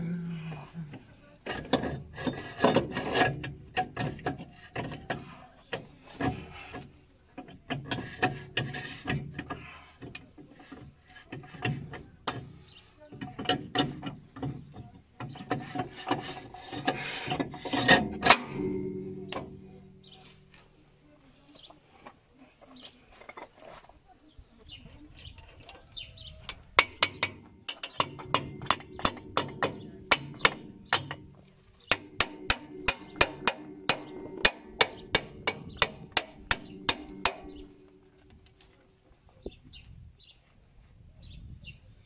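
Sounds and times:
metal hub scraping: 1.0s - 20.7s, 26.8s - 38.4s
hammer striking metal hub: 15.3s - 20.2s, 26.8s - 38.2s.

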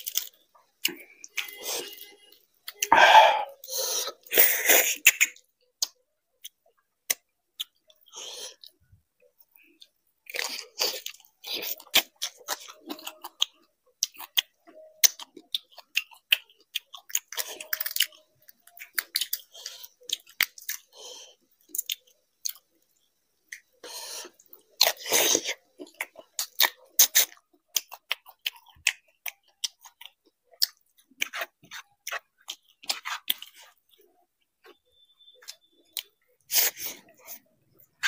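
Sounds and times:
crunchy chewing: 0.0s - 38.0s.

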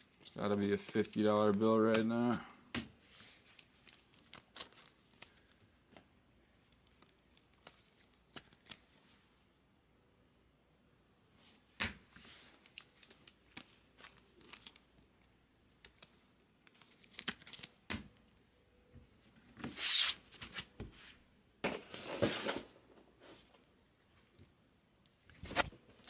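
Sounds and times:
cards clicking and rustling: 0.2s - 9.0s, 11.8s - 18.2s
plastic crinkling and tearing: 3.4s - 6.0s, 6.7s - 8.9s, 12.6s - 14.9s, 15.8s - 17.8s.

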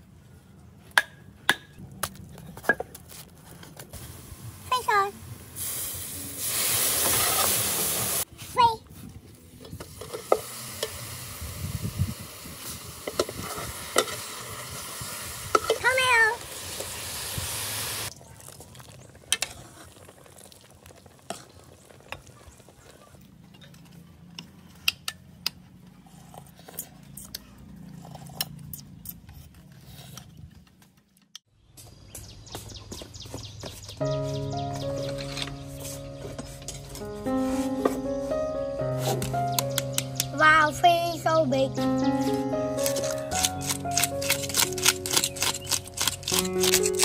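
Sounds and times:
cooking hiss: 4.0s - 8.3s, 9.7s - 22.1s
music: 34.0s - 47.0s
utensils and dishes clinking: 42.8s - 47.0s.

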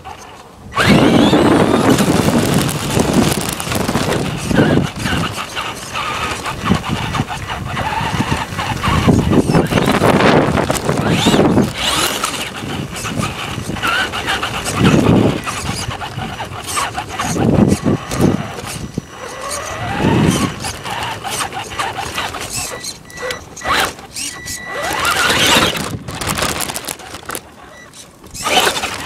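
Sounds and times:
wheels rattling on brick paving: 0.0s - 29.0s
electric motor whine: 0.7s - 27.4s.

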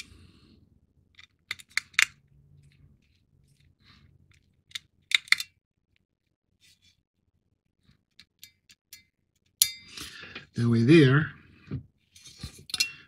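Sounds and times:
plastic parts clicking: 1.1s - 2.2s, 4.3s - 5.6s.

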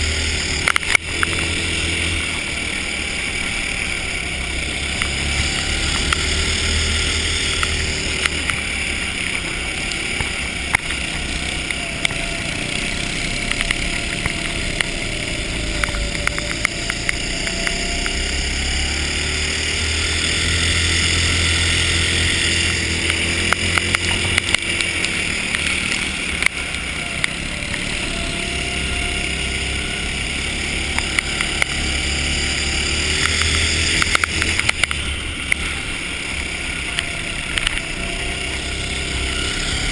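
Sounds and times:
small kart engine running: 0.0s - 39.9s
sharp clicks and knocks: 0.4s - 1.6s, 7.4s - 12.5s, 13.2s - 18.3s, 22.7s - 27.9s, 33.1s - 35.8s, 36.8s - 38.2s.

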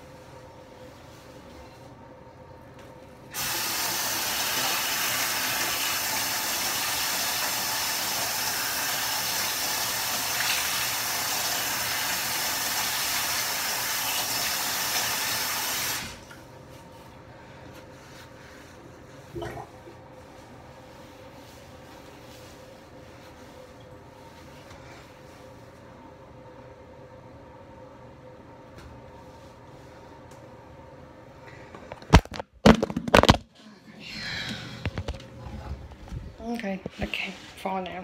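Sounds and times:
faucet running water: 3.3s - 16.4s.

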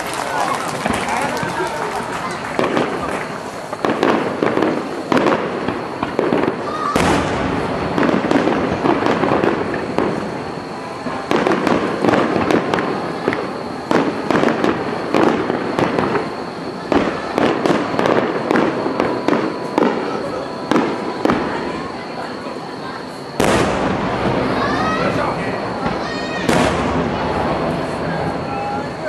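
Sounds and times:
fireworks bursting and crackling: 0.0s - 29.0s.

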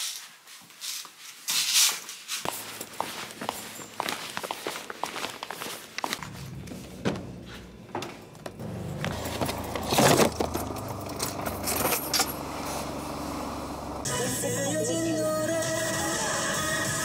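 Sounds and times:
footsteps on hard floor: 0.5s - 9.8s
rustling and clunks: 1.6s - 13.0s
car door opening: 6.2s - 12.8s.

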